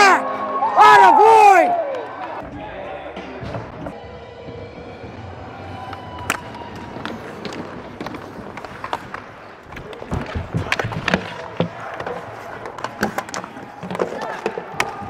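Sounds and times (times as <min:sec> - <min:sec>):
ice rink background noise: 0:00.0 - 0:15.0
hockey sticks and puck clacking: 0:05.7 - 0:15.0.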